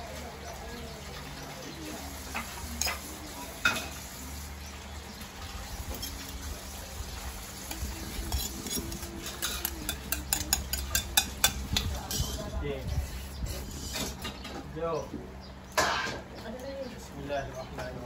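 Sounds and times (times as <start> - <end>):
food frying in a pot: 0.0 - 12.5.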